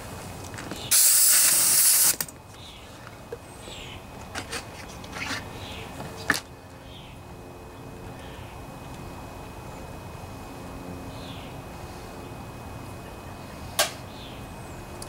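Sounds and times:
spray hissing: 0:00.9 - 0:02.3.

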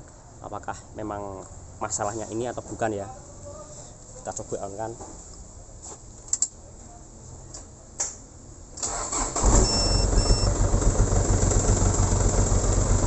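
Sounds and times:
diesel truck engine cranking and idling: 0:08.8 - 0:13.0
short beeps: 0:09.5 - 0:10.5.

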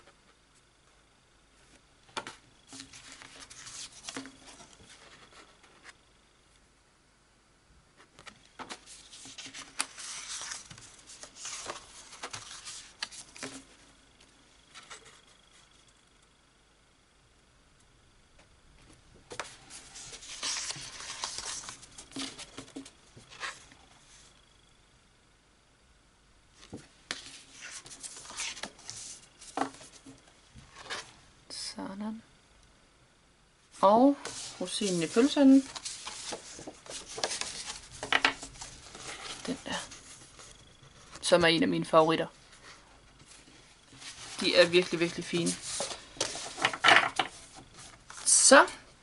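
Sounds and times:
paper rustling and sliding: 0:01.7 - 0:06.0, 0:08.0 - 0:13.8, 0:19.3 - 0:24.3, 0:26.6 - 0:31.1, 0:34.1 - 0:41.3, 0:42.5 - 0:48.5.

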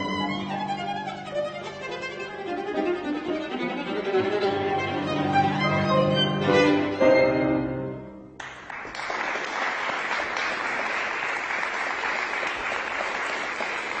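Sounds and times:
audience applause: 0:08.4 - 0:14.0.

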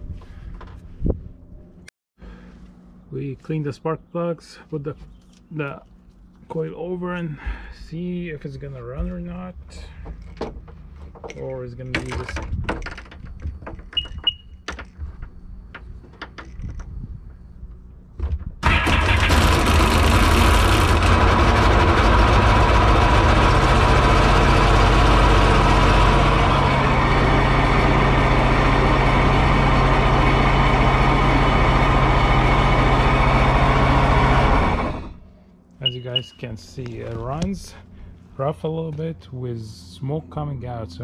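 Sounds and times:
watercraft engine cranking and idling: 0:18.6 - 0:35.2
short beep: 0:35.8 - 0:36.5.

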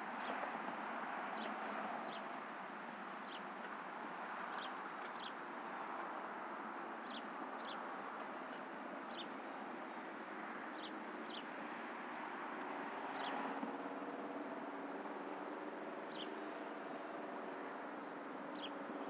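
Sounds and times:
bird chirping: 0:16.1 - 0:16.3.

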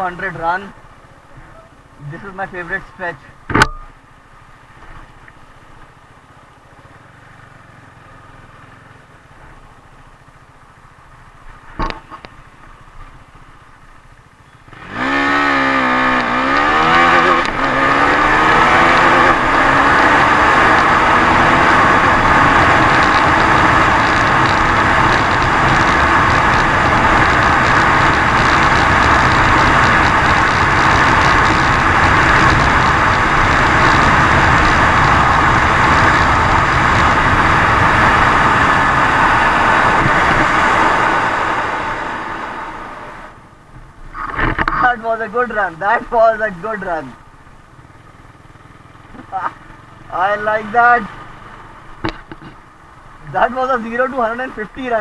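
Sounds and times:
motorcycle engine: 0:03.4 - 0:55.0
wind rushing: 0:14.9 - 0:43.4.

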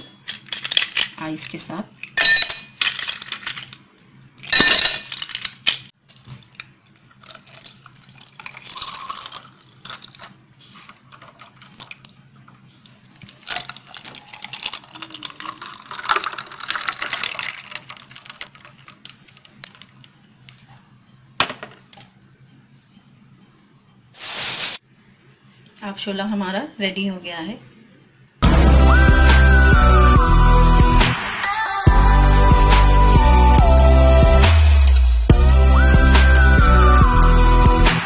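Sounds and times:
ice and glass clinking: 0:02.1 - 0:03.8, 0:04.4 - 0:05.8, 0:07.3 - 0:10.4, 0:13.2 - 0:19.1
juice pouring into glasses: 0:06.0 - 0:12.2, 0:12.8 - 0:20.2.

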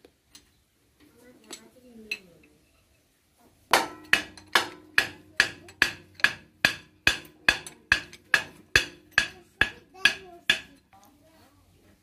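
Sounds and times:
hammer striking steel: 0:03.7 - 0:10.8.

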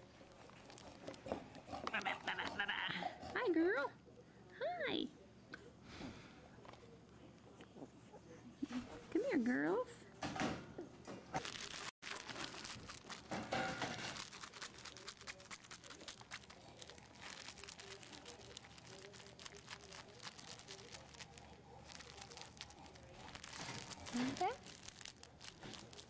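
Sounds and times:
plastic toy crinkling: 0:00.0 - 0:02.3, 0:11.4 - 0:26.0.

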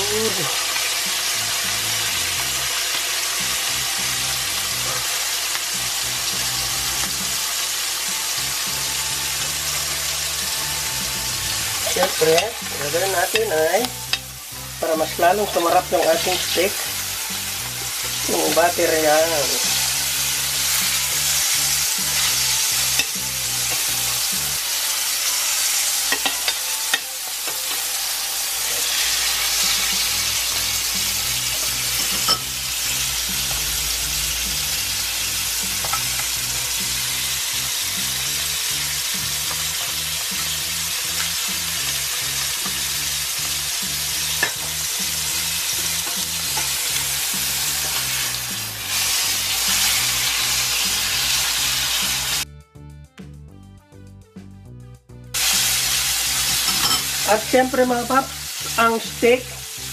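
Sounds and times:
steak sizzling in a pan: 0:00.0 - 0:52.4, 0:55.4 - 0:59.9
utensil clicking on pan: 0:26.0 - 0:27.9.

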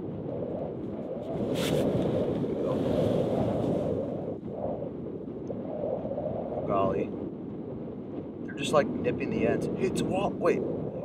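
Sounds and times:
wind buffeting microphone: 0:00.0 - 0:11.0
scratchy rustle: 0:01.4 - 0:02.1.

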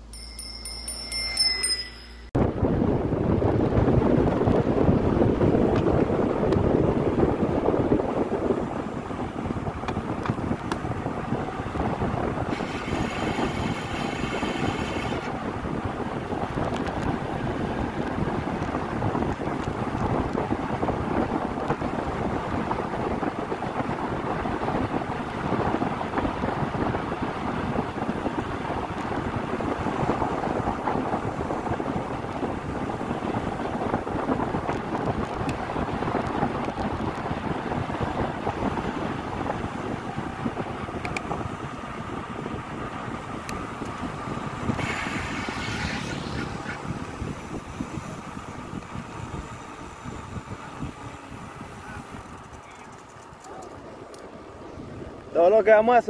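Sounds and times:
wind buffeting microphone: 0:02.4 - 0:56.0
hissing rush: 0:44.7 - 0:47.4.

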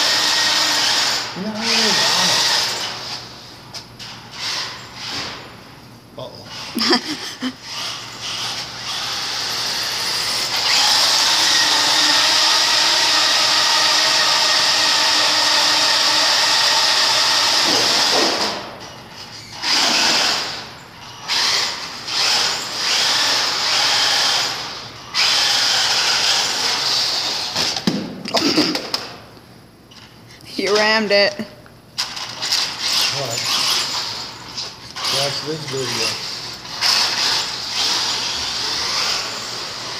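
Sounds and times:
electric motor whining: 0:00.0 - 0:03.3, 0:06.6 - 0:27.6, 0:32.3 - 0:39.9.

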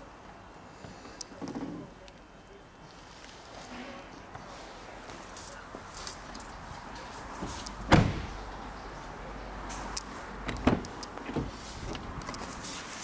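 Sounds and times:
car door shutting: 0:07.4 - 0:08.4, 0:10.4 - 0:12.4.

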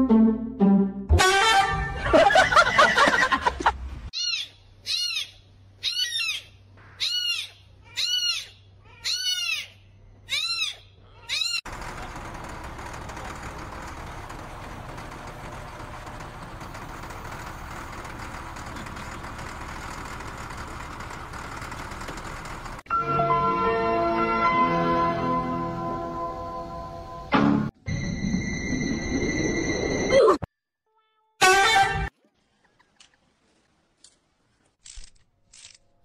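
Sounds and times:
heavy machine engine: 0:11.7 - 0:22.9.

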